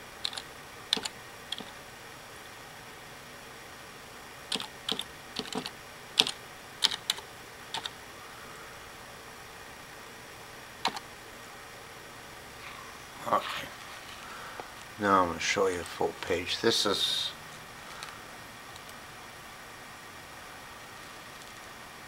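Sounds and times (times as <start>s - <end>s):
keyboard typing: 0.2s - 1.8s, 4.5s - 8.0s, 10.8s - 11.0s.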